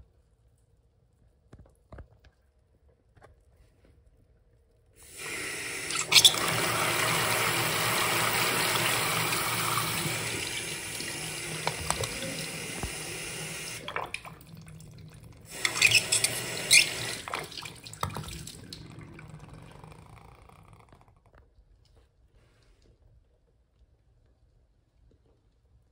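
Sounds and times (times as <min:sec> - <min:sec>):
toy toilet flushing: 0:05.0 - 0:20.8
water splashing: 0:05.2 - 0:19.8.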